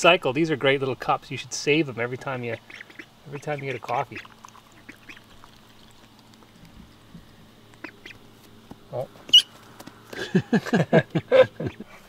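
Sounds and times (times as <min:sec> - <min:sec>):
ducks quacking: 0:02.2 - 0:05.5, 0:07.8 - 0:08.2.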